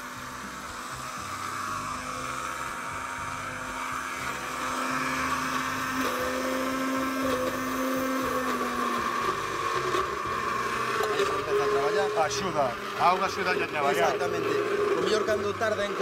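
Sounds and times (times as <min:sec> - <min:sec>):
blender crushing ice: 0:00.0 - 0:16.0.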